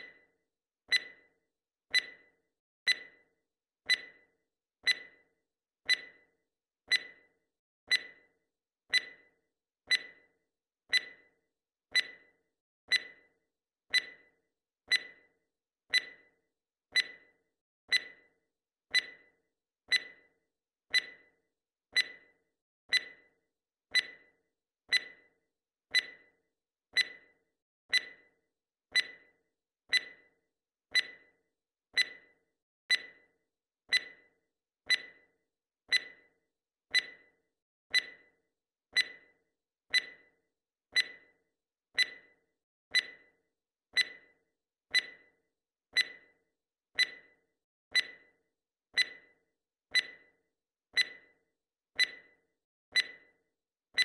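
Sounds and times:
timer ticking: 0.9s - 1.3s, 1.9s - 3.2s, 3.9s - 5.2s, 5.9s - 6.3s, 6.9s - 7.2s, 7.9s - 8.3s, 8.9s - 9.3s, 9.9s - 10.2s, 10.9s - 12.3s, 13.9s - 14.3s, 14.9s - 15.3s, 15.9s - 16.3s, 16.9s - 18.3s, 18.9s - 19.3s, 19.9s - 20.3s, 20.9s - 21.3s, 21.9s - 23.3s, 23.9s - 24.3s, 24.9s - 25.3s, 25.9s - 26.3s, 26.9s - 30.3s, 30.9s - 31.4s, 32.0s - 33.3s, 33.9s - 35.3s, 35.9s - 36.3s, 36.9s - 37.3s, 37.9s - 40.3s, 40.9s - 41.4s, 42.0s - 43.4s, 44.0s - 45.3s, 46.0s - 46.4s, 47.0s - 48.4s, 49.0s - 50.4s, 51.0s - 51.4s, 52.0s - 53.3s.

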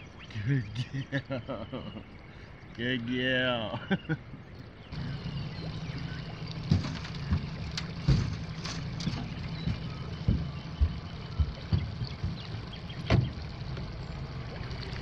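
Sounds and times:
low hum: 4.5s - 15.0s
footsteps on aluminium hull: 5.0s - 14.0s.

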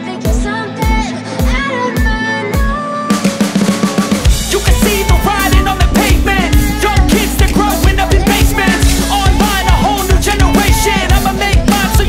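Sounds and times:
rap song with kick-drum beat: 4.2s - 12.0s.

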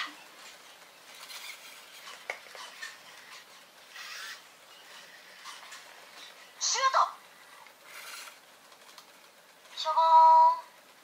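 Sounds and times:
servo motors whirring: 1.1s - 5.8s, 7.9s - 8.4s.

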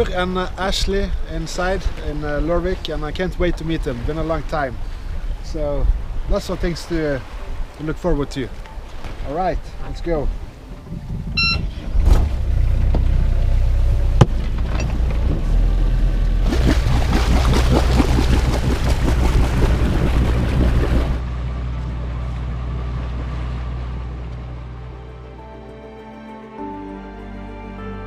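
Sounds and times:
water rushing past hull: 0.0s - 21.2s
boat engine droning: 8.6s - 27.8s
short beep: 11.4s - 11.7s.

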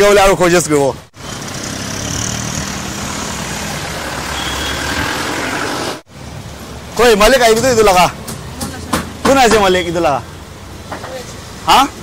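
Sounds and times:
road noise: 0.0s - 12.0s
passing vehicle engines: 1.0s - 12.0s
auto-rickshaw engine: 1.1s - 6.1s.

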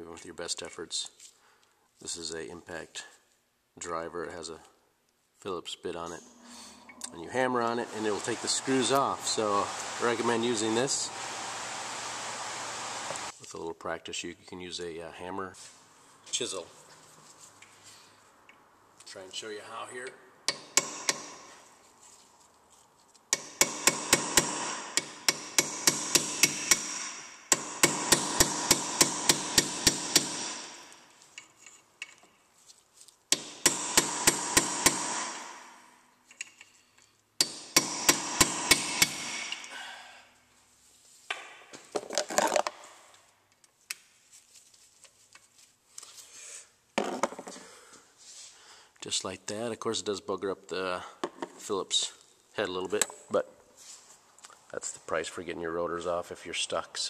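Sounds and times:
hammer striking chisel: 20.5s - 21.5s, 23.3s - 31.0s, 33.3s - 35.8s, 37.4s - 39.7s.

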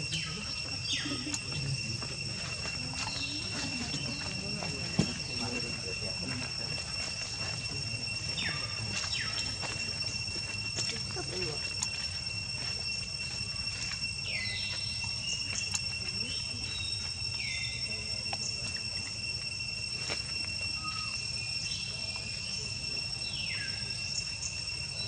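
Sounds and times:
insects droning: 0.0s - 25.0s
calls gliding down in pitch: 20.5s - 22.7s.

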